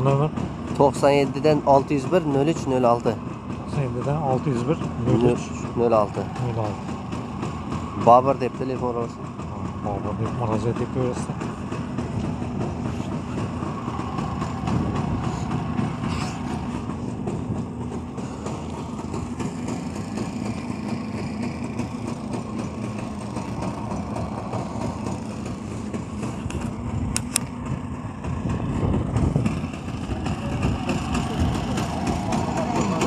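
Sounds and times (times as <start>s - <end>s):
small engine idling: 0.0s - 33.0s
sharp click: 26.4s - 27.5s.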